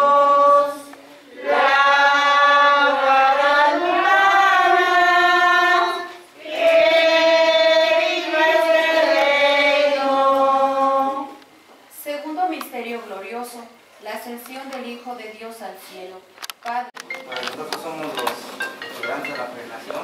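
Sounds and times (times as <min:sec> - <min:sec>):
group of voices singing: 0:00.0 - 0:11.4.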